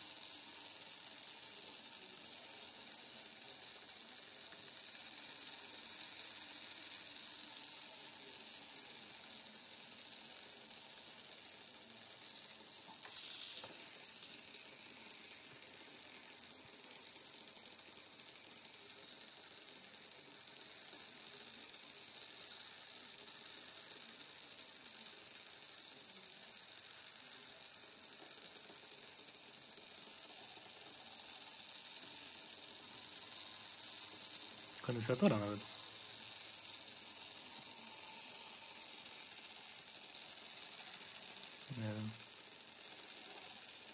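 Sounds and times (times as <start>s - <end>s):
servo motor hissing: 12.6s - 15.8s, 30.3s - 43.9s.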